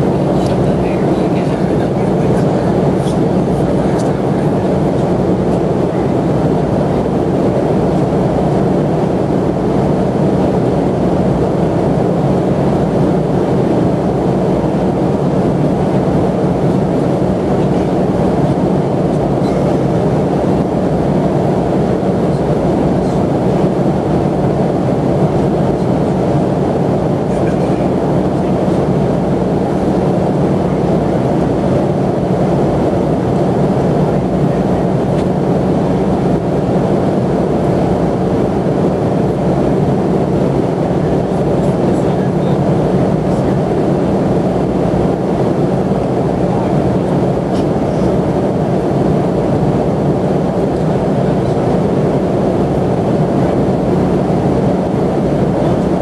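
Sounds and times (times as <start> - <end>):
airliner engines and airflow drone: 0.0 - 56.0
low hum: 0.0 - 56.0.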